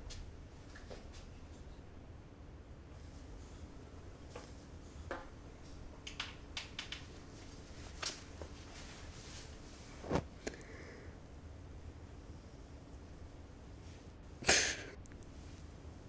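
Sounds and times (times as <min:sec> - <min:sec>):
clothing rustles and clicks: 0:06.6 - 0:10.3.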